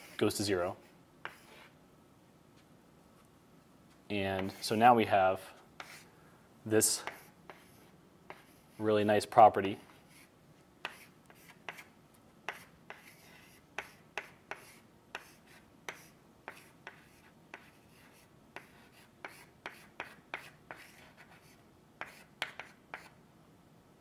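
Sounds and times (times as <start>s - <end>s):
chalk tapping and scraping on blackboard: 0.0s - 1.8s, 4.3s - 4.7s, 5.8s - 6.1s, 6.8s - 8.9s, 9.8s - 23.2s.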